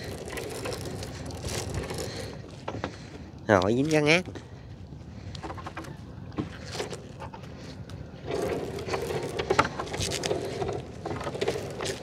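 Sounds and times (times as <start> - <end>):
net hauling knocks and scraping: 0.0 - 3.0, 8.2 - 12.0.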